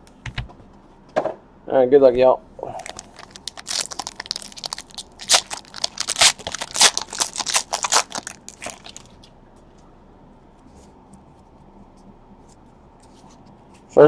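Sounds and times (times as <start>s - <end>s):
foil wrapper crinkling: 2.8s - 9.2s.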